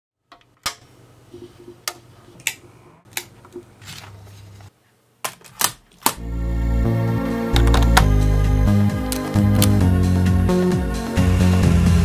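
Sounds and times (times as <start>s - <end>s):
plastic cassette case clicks: 7.5s - 8.2s, 9.1s - 9.8s.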